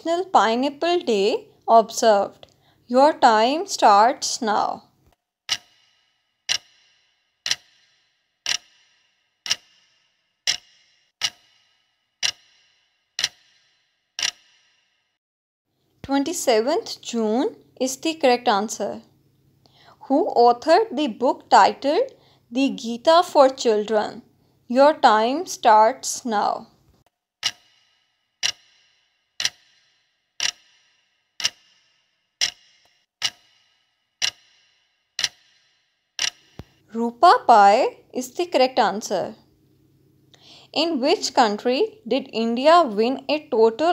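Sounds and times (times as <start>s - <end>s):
clock ticking: 0.0s - 14.8s, 27.4s - 37.5s.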